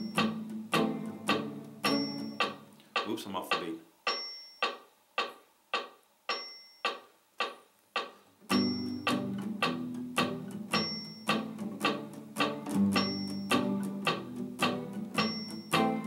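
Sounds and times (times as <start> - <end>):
acoustic guitar strumming: 0.0 - 3.2, 8.4 - 16.0
metronome clicks: 0.0 - 16.0.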